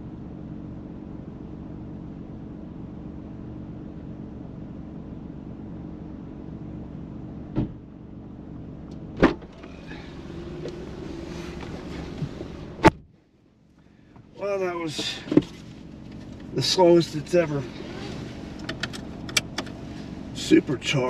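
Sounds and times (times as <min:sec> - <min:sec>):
car engine idling: 0:00.0 - 0:21.0
outside noise: 0:00.0 - 0:21.0
car door clunks: 0:07.5 - 0:07.8, 0:09.2 - 0:13.1.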